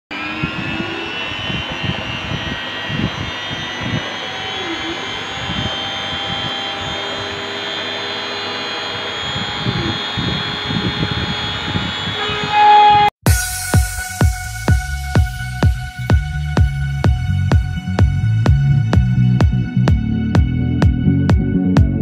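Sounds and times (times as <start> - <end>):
rotary tool whining: 0.1 - 13.1.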